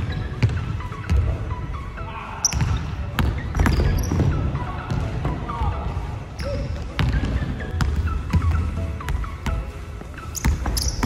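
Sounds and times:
sneakers squeaking on court: 0.0 - 1.8, 2.4 - 11.0
basketball bouncing on wooden floor: 2.5 - 5.1, 6.9 - 9.6.

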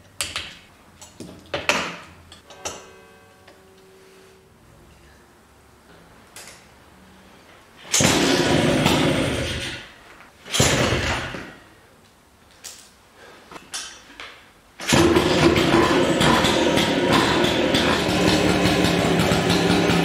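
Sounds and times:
scooter engine starting and running: 7.9 - 11.6, 14.8 - 20.0.

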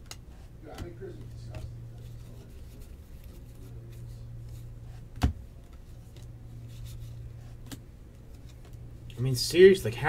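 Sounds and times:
trading cards rustling: 0.3 - 4.7.

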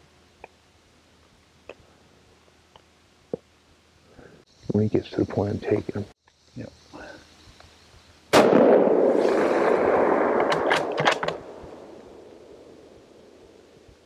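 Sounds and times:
rifle shot: 8.3 - 13.4
sharp clicks: 10.4 - 11.4.

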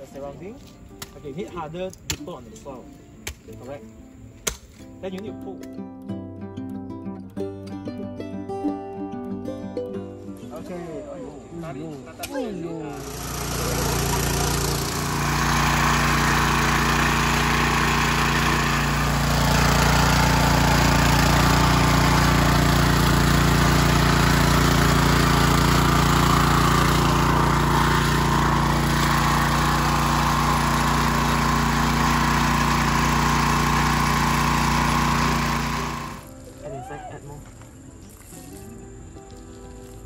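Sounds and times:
small petrol engine running: 12.9 - 36.3.

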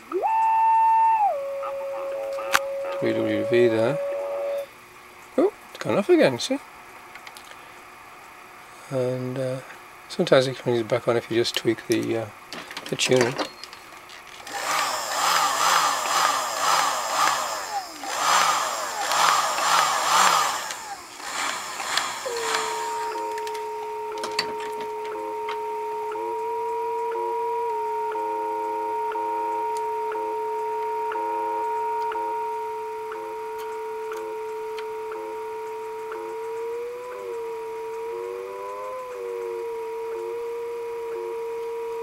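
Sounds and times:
pulsing radio static: 0.0 - 4.7, 14.5 - 42.0
steady radio tone: 0.0 - 4.7, 14.6 - 42.0
faint time signal ticks: 20.7 - 42.0.

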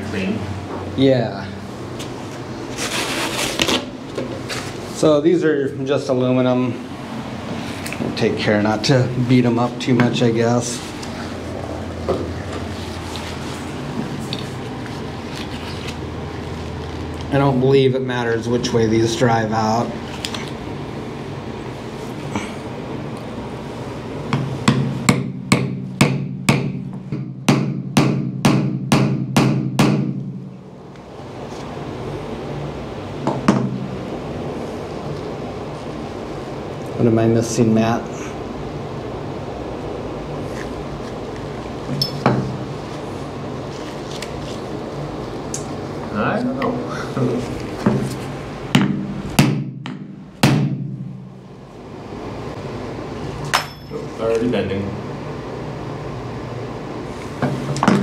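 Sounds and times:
hammer striking metal punch: 24.4 - 30.4, 48.8 - 51.1, 53.5 - 54.0.

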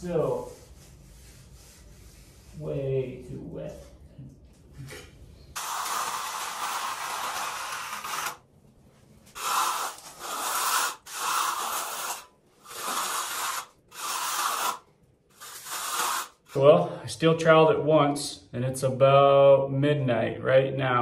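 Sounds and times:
trowel scraping wet concrete: 5.6 - 8.4, 9.4 - 14.8, 15.4 - 16.6.

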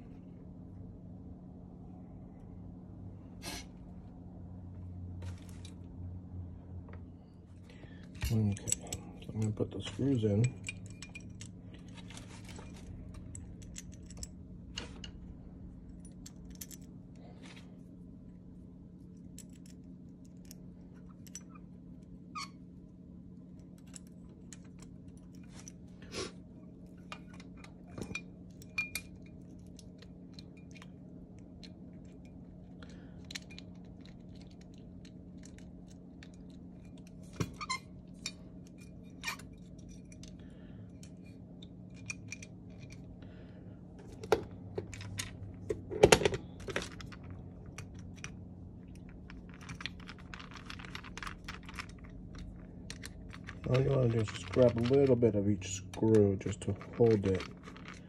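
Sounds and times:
steady low hum: 0.0 - 58.0
small metal parts clinking: 8.1 - 15.2, 15.9 - 17.0, 19.2 - 21.7, 26.8 - 43.2, 44.0 - 58.0.

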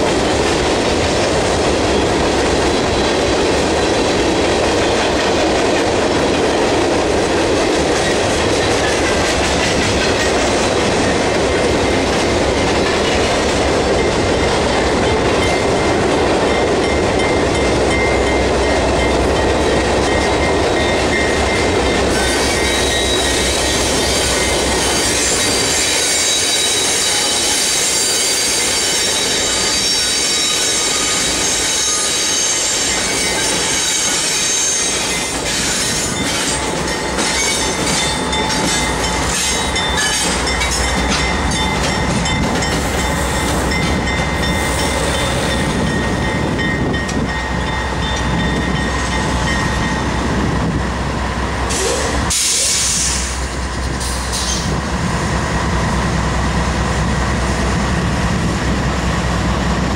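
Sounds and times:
train wheels squealing on rail: 19.7 - 51.0, 51.6 - 54.8.

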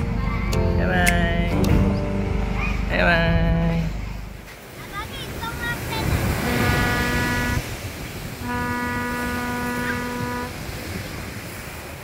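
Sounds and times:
wind and surf rumble: 0.0 - 12.0
horn blasts: 6.3 - 7.7, 8.4 - 10.9.

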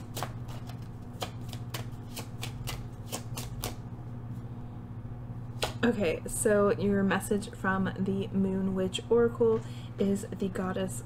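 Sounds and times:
cards being shuffled: 0.0 - 3.8
low steady hum: 0.0 - 11.0.

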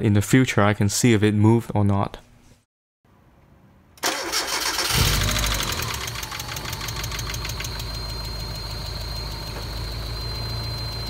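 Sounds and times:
car engine starting and idling: 4.0 - 11.0
high-pitched whine: 5.3 - 11.0.

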